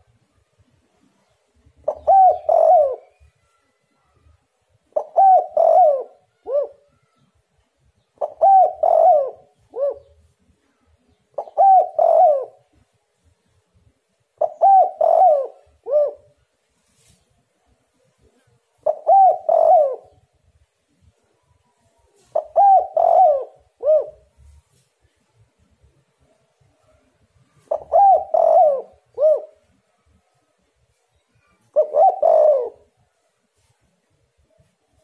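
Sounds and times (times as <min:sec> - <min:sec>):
dove cooing: 0:01.8 - 0:03.5, 0:04.9 - 0:06.9, 0:08.2 - 0:10.3, 0:11.3 - 0:12.8, 0:14.4 - 0:16.4, 0:18.2 - 0:20.3, 0:22.1 - 0:24.6, 0:26.8 - 0:30.0, 0:31.4 - 0:33.7.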